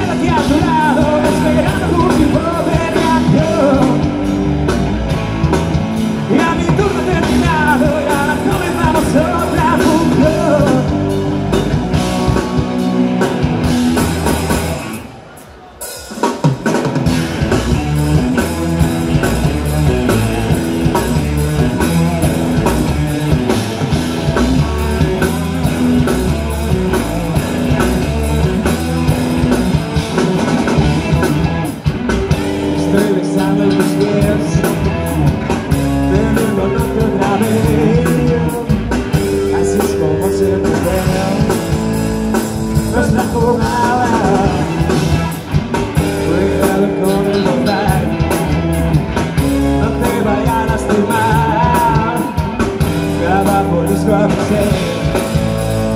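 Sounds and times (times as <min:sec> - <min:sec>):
man singing: 0:00.0 - 0:04.4, 0:06.1 - 0:12.9, 0:32.4 - 0:55.9
rock band playing: 0:00.0 - 0:55.9.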